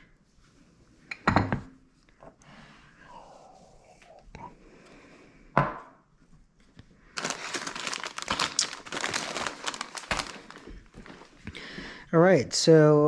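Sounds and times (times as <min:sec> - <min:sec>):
plastic bags crinkling: 0:07.1 - 0:11.5.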